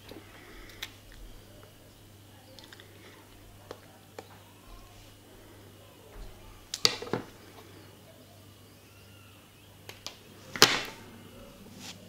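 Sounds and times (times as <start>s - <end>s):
low steady hum: 0.0s - 12.0s
sharp clicks: 2.4s - 4.4s.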